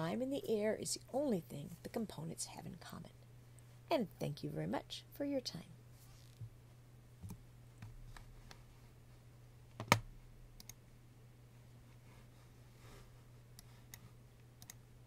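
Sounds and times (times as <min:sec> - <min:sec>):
low steady hum: 0:00.0 - 0:15.0
computer keyboard and mouse clicks: 0:09.8 - 0:10.0, 0:10.6 - 0:10.8, 0:13.6 - 0:14.8.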